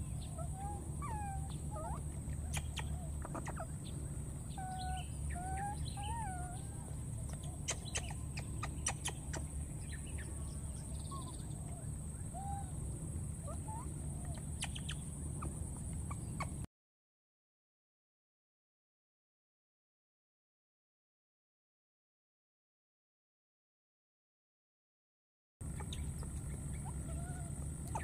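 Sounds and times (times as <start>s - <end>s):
steady low rumble: 0.0s - 16.7s, 25.6s - 28.0s
baby monkey whimpering coos: 0.4s - 3.7s, 4.5s - 9.4s, 13.5s - 16.6s, 25.7s - 28.0s.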